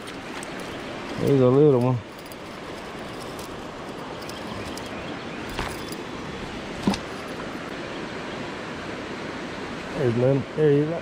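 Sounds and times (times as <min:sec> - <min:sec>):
river flowing over rocks: 0:00.0 - 0:07.7.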